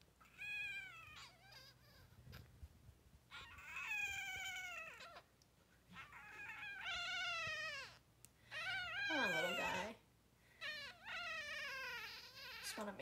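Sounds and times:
kitten crying: 0.2s - 2.2s, 3.3s - 5.3s, 6.0s - 10.0s, 10.6s - 12.8s.

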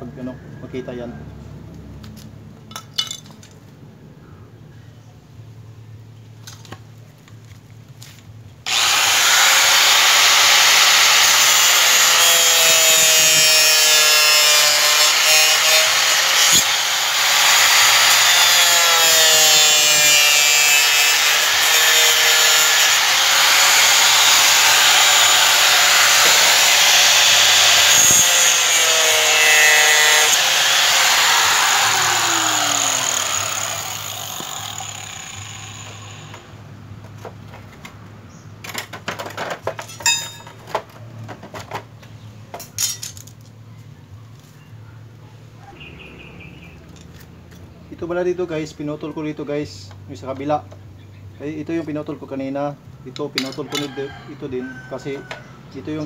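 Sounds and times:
power tool cutting plastic: 8.7s - 36.5s.

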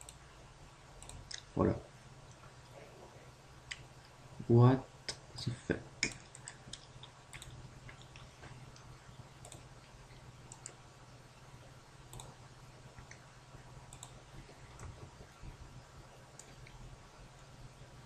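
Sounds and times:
low steady hum: 0.0s - 18.0s
faint computer mouse clicks: 10.5s - 10.8s, 12.1s - 12.3s, 13.9s - 14.2s.

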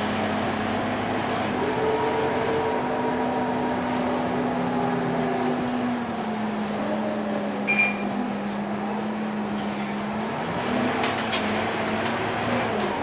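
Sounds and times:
bus engine hum from inside: 0.0s - 13.0s
short high beep: 7.7s - 8.1s.

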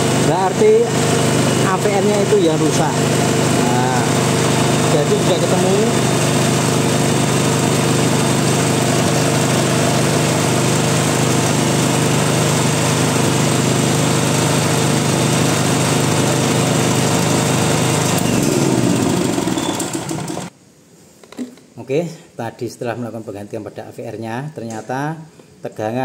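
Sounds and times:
generator engine running: 0.0s - 20.5s.

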